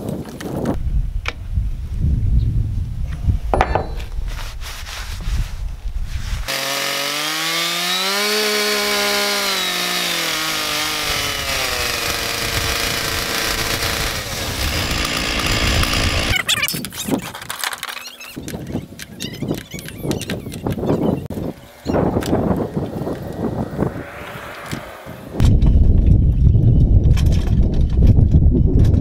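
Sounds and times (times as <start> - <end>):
chainsaw running: 6.5 - 16.4
low rumbling with clicks: 25.4 - 29.0.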